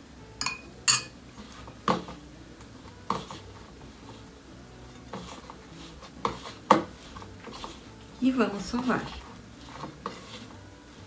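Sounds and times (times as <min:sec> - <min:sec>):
metal bowl clinking: 0:00.4 - 0:01.2.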